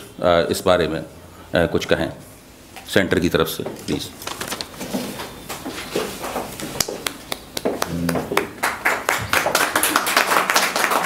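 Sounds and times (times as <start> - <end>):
audience clapping: 5.4 - 11.0.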